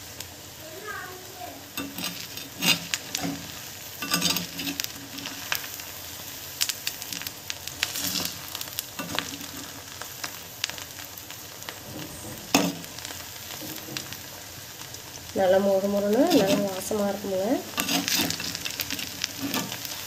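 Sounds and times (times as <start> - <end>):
food deep-frying in oil: 0.0 - 20.0
metal spoon scraping pot: 1.8 - 5.3, 16.3 - 16.9, 17.7 - 19.9.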